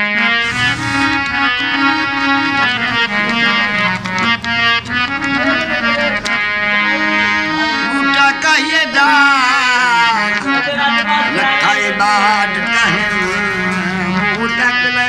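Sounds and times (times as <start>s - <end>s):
harmonium melody with drone: 0.0s - 15.0s
man singing: 8.0s - 15.0s.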